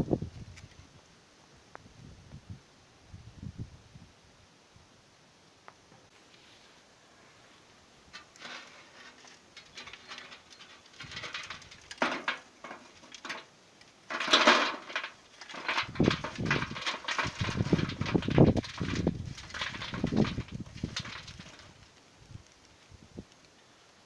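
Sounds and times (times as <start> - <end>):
metal and coals clicking and scraping: 6.1 - 24.0
coals clattering into grill: 8.1 - 22.7.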